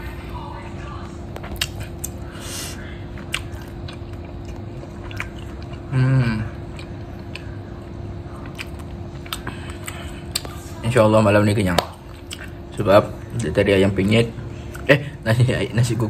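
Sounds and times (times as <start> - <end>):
man chewing noodles: 1.4 - 10.6, 12.1 - 12.6
man humming: 5.9 - 6.6.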